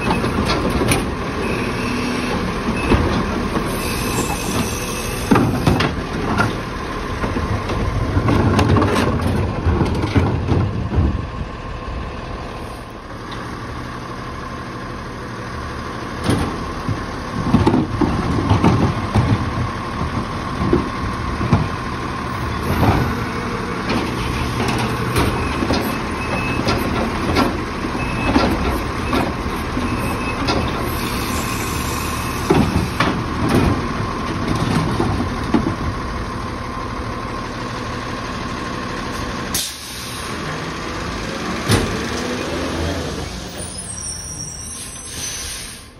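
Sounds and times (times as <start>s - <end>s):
garbage truck engine with whine: 0.0s - 45.9s.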